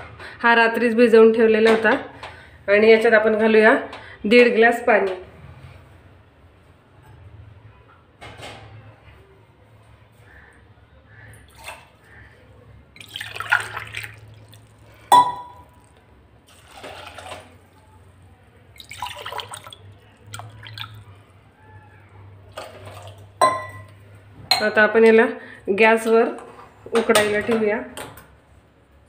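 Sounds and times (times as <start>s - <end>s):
water pouring into bowl: 12.9s - 17.8s, 18.7s - 21.2s, 22.5s - 23.4s
glass clinking against steel bowl: 15.1s - 15.8s, 23.4s - 24.8s.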